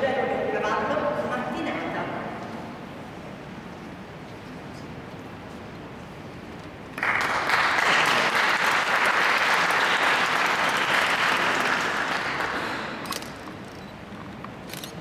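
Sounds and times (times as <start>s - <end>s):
audience applause: 7.0s - 13.0s.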